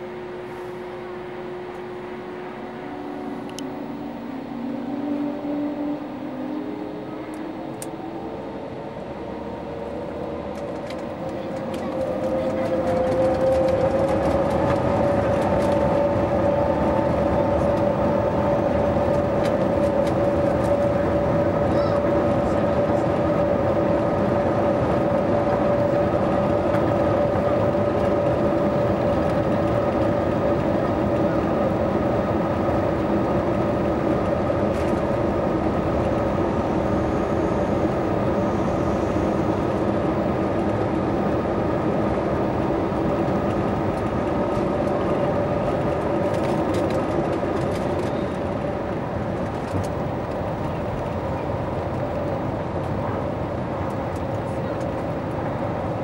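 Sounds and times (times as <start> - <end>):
jet engines roaring in cabin: 0.0 - 56.0.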